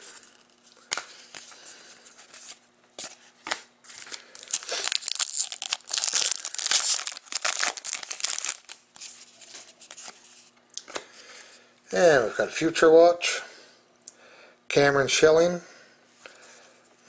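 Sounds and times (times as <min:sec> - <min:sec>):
foil wrapper crinkling: 0:03.9 - 0:10.2.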